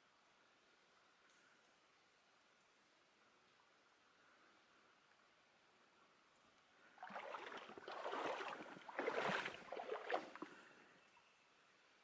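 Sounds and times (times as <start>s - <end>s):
water splashing and sloshing: 6.9s - 10.9s.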